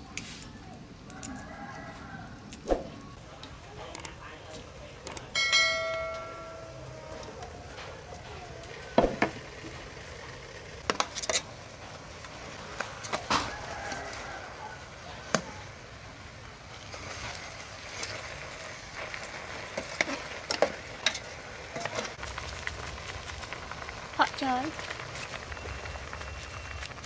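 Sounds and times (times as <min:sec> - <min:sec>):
liquid simmering in a pot: 0:06.3 - 0:27.0.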